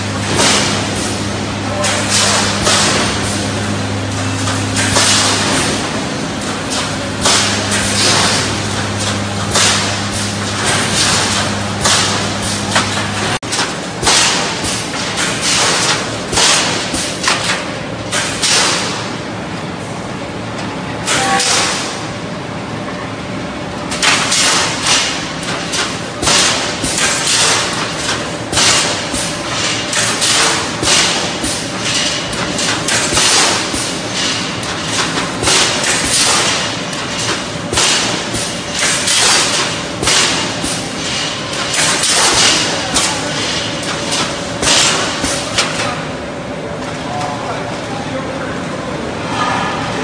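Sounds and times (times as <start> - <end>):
noisy welding bursts: 0.0 - 19.4, 20.9 - 22.4, 23.8 - 46.5
welding machine hum: 0.0 - 46.8.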